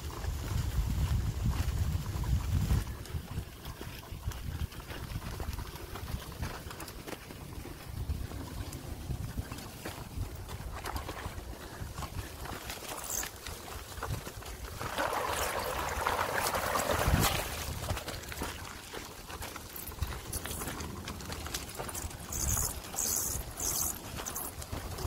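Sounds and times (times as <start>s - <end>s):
bicycle tyres crunching on dirt: 0.0s - 25.0s
tyres swishing through puddle: 8.7s - 25.0s.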